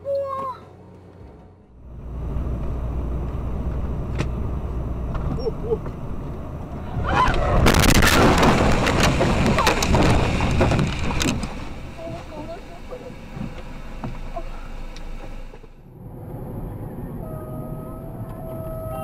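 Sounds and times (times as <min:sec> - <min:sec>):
car road and engine rumble: 0:00.0 - 0:19.0
car crash impacts: 0:06.8 - 0:15.8.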